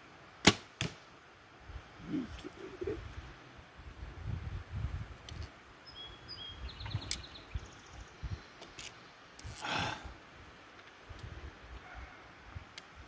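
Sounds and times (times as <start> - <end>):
birds chirping: 5.8 - 8.8
breath-like rush of noise: 9.4 - 10.4.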